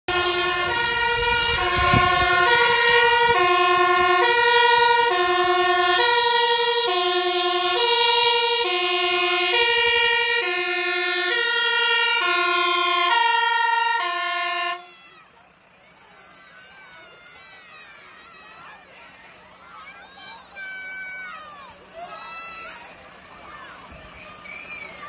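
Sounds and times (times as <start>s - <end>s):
fire engine two-tone siren: 0.1s - 15.3s.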